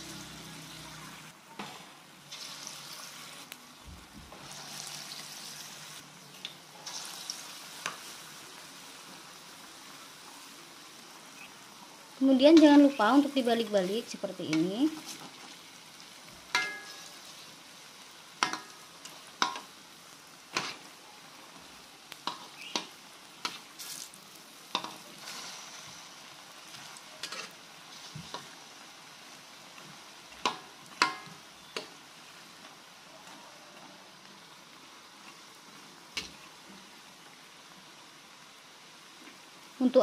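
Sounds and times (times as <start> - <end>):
oil sizzling in a wok: 0.0 - 40.0
metal spatula clinking on pan: 16.5 - 17.1, 18.4 - 18.7.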